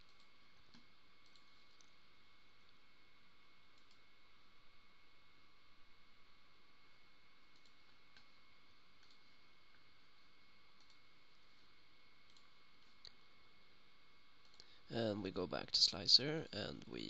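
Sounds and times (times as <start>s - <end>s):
computer mouse clicks: 0.0s - 2.0s, 3.7s - 4.0s, 7.5s - 8.3s, 9.0s - 9.2s, 10.8s - 11.0s, 12.2s - 13.2s, 14.4s - 14.7s
thin steady whine: 0.0s - 17.0s.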